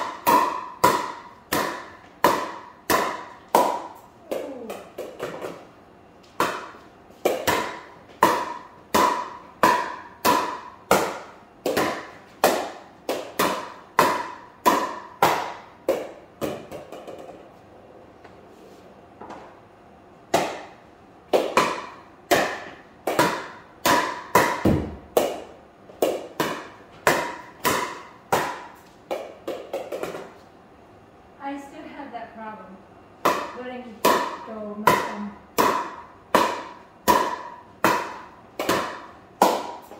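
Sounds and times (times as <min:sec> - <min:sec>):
paddle hitting plastic ball: 0:00.0 - 0:05.7, 0:06.3 - 0:17.4, 0:20.3 - 0:30.4, 0:33.2 - 0:39.9.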